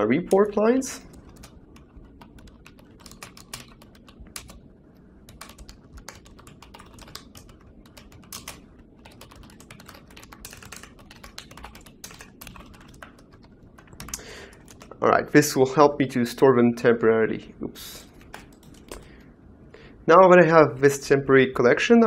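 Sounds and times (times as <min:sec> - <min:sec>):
typing on computer keyboard: 0:00.2 - 0:04.6, 0:05.3 - 0:15.0, 0:18.0 - 0:19.1.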